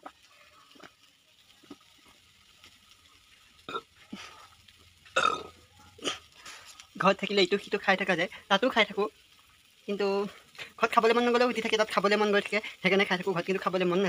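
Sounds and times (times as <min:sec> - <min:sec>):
man gulping a drink: 0:01.6 - 0:02.2, 0:03.6 - 0:06.4
man burping: 0:03.7 - 0:03.9, 0:05.2 - 0:06.3.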